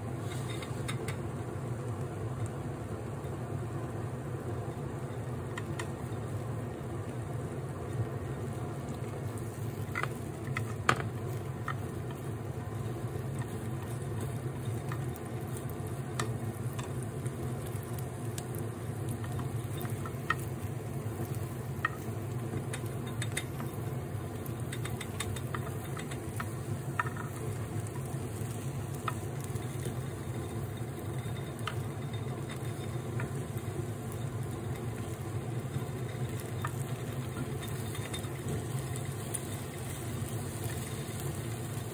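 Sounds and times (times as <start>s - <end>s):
egg sizzling: 0.0s - 41.9s
steady low hum: 0.0s - 41.9s
chopsticks scraping and tapping a pan: 0.2s - 1.2s, 9.4s - 20.6s, 21.2s - 28.1s, 29.0s - 40.0s.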